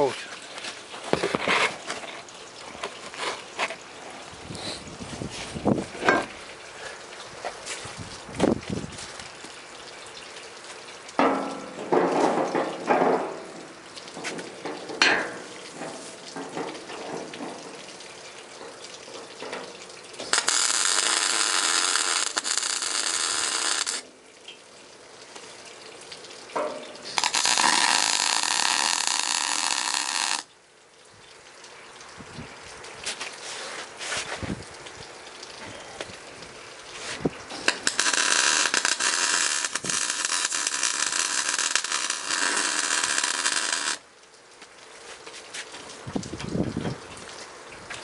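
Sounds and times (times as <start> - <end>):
electric arc welder sizzling: 20.2 - 24.1, 27.1 - 30.5, 37.6 - 44.0.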